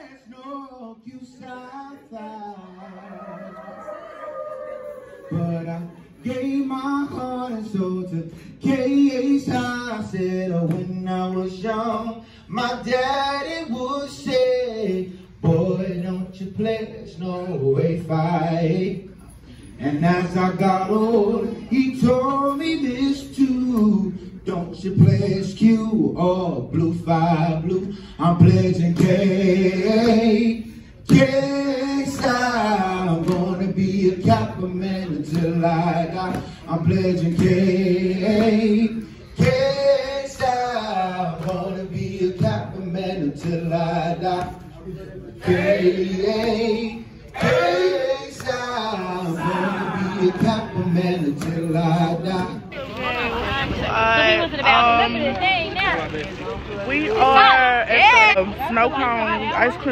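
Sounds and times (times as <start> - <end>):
men singing a chant: 19.8 - 52.8.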